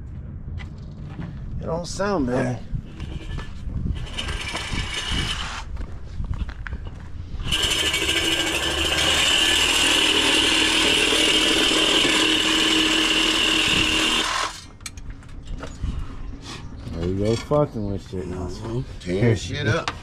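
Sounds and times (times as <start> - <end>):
power tool whining: 7.4 - 14.8.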